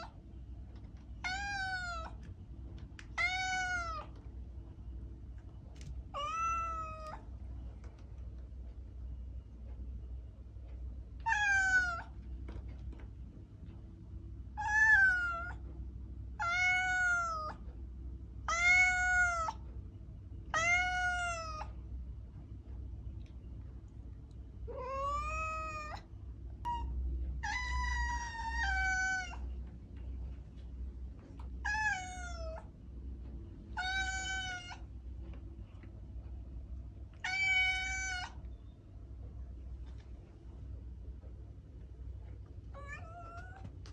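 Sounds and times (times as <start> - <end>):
faint low hum: 0.0 - 43.9
cat meowing: 1.2 - 2.2, 3.1 - 4.2, 6.1 - 7.3, 11.2 - 12.2, 14.6 - 15.6, 16.4 - 17.6, 18.5 - 19.6, 20.5 - 21.7, 24.7 - 29.5, 31.6 - 32.7, 33.8 - 34.9, 37.2 - 38.4, 42.7 - 43.7.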